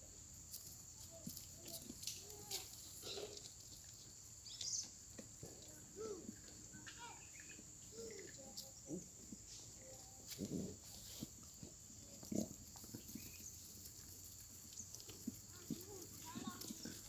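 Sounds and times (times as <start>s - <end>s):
goats snuffling at hay: 1.2s - 3.9s, 9.2s - 17.0s.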